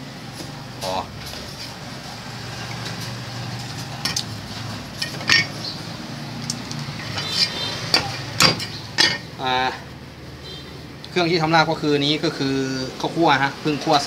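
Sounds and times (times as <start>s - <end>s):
knives tapping on plate and block: 4.0s - 4.3s, 6.5s - 9.3s.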